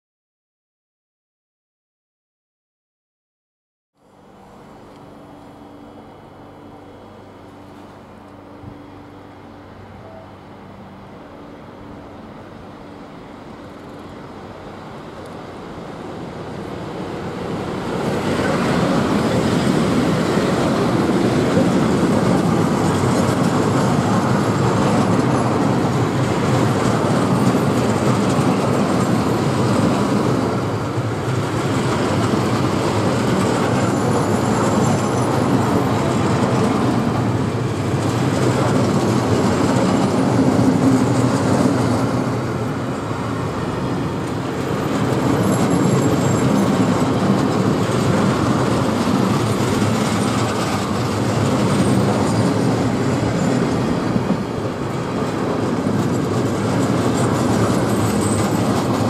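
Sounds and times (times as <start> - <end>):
freight train rumbling past: 4.1 - 59.0
faint high wheel squeals: 33.3 - 36.5, 44.7 - 47.2, 51.4 - 53.7, 56.5 - 59.0.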